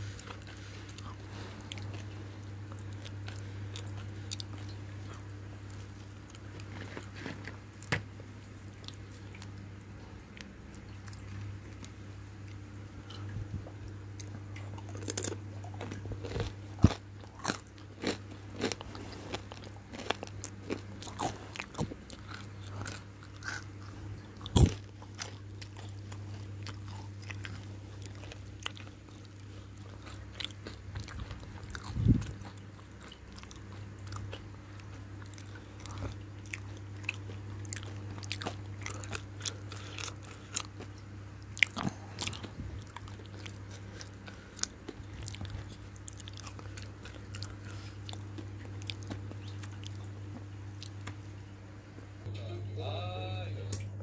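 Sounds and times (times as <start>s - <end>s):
low steady hum: 0.0s - 54.0s
crunching crispy fried food: 14.2s - 23.7s, 24.4s - 50.1s.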